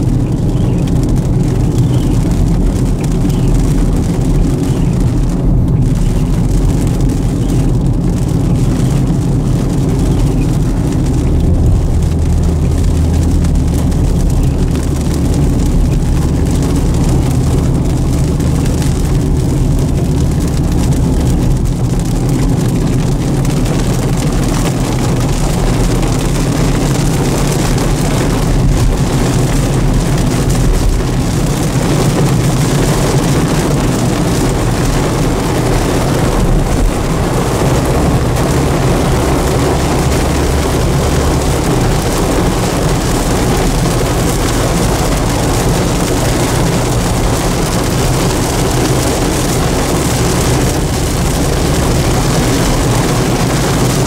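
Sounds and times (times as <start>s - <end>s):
car road and engine noise: 0.0s - 54.0s
low drone: 9.6s - 18.1s.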